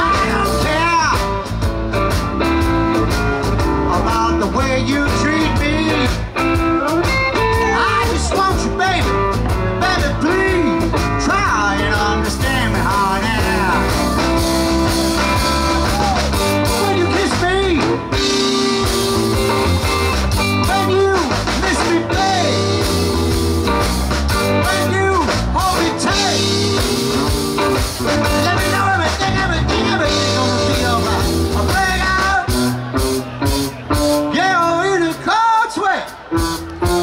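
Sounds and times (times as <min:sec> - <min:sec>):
man singing: 0:00.0 - 0:01.5, 0:03.9 - 0:14.7, 0:15.4 - 0:18.7, 0:20.6 - 0:23.3, 0:24.5 - 0:27.4, 0:28.1 - 0:32.7, 0:34.3 - 0:36.2
rock band playing: 0:00.0 - 0:37.0.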